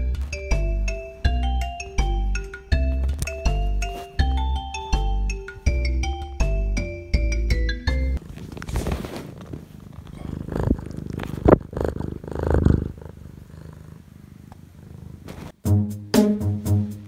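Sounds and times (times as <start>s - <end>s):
cat purring: 8.2s - 15.6s.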